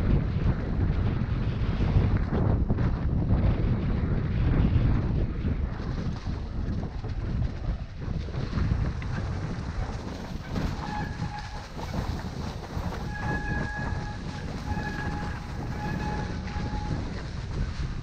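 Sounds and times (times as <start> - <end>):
bike rattling over bumps: 0.0 - 18.0
bike tyres rumbling on dirt: 0.0 - 18.0
wind on microphone: 0.0 - 18.0.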